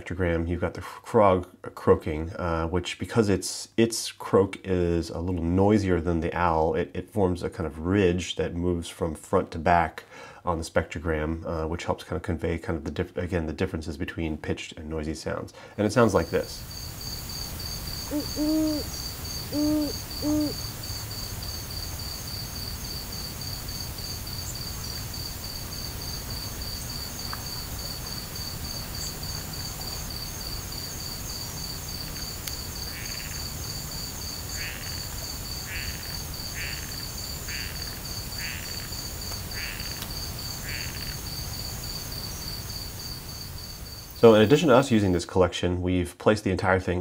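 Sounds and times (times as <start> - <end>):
crickets chirping: 15.9 - 45.2
frog croaking: 16.2 - 44.8
owl hooting: 17.2 - 21.7, 32.9 - 33.4, 35.6 - 38.9, 39.5 - 40.0, 40.6 - 41.2.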